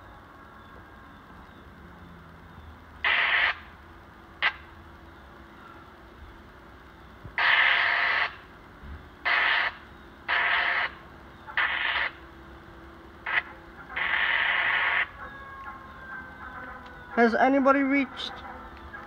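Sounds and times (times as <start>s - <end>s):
radio scanner static bursts: 3.0s - 3.8s, 4.4s - 4.7s, 7.3s - 8.5s, 9.2s - 12.4s, 13.1s - 19.0s.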